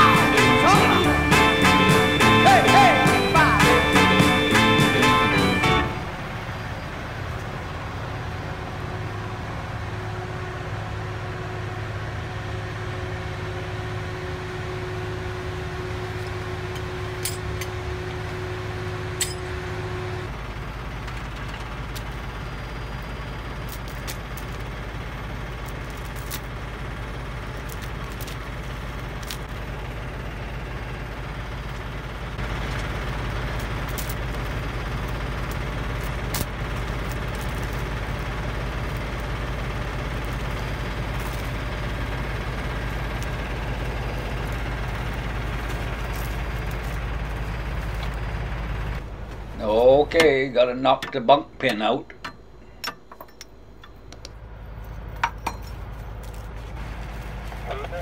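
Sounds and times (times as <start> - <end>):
diesel truck engine idling: 0.0 - 58.0
steady whine: 0.0 - 58.0
sharp clicks and clinks: 19.2 - 19.5, 50.9 - 56.5.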